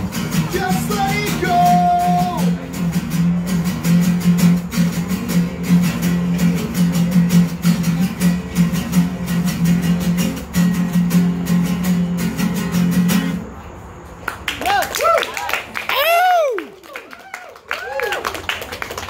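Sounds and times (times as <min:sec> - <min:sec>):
acoustic guitars strumming: 0:00.0 - 0:13.8.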